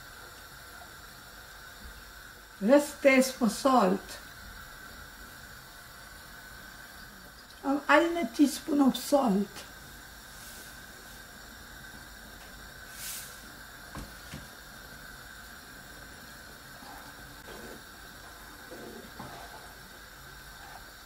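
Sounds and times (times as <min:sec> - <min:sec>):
soup simmering hiss: 0:00.0 - 0:21.0
salt pouring from shaker: 0:12.9 - 0:13.5
wooden spoon stirring soup: 0:16.8 - 0:19.9.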